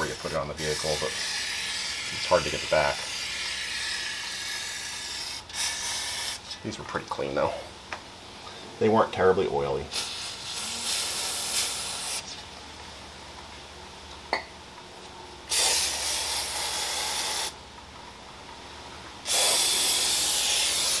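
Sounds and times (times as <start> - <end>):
aerosol spray hissing: 9.9 - 12.3, 15.5 - 17.6, 19.2 - 21.0.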